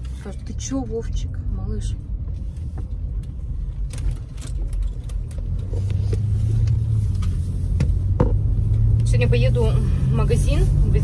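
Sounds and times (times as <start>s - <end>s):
car road and engine rumble: 0.0s - 11.0s
light clicks and rustles: 2.2s - 8.0s.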